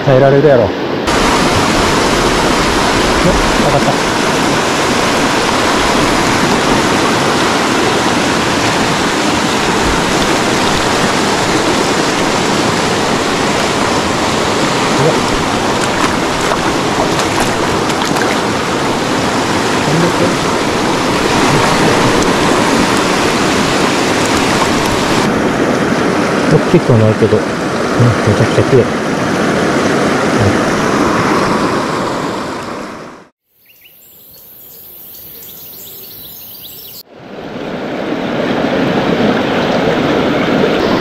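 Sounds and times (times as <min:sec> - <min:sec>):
river water rushing: 0:00.7 - 0:33.3, 0:37.1 - 0:41.0.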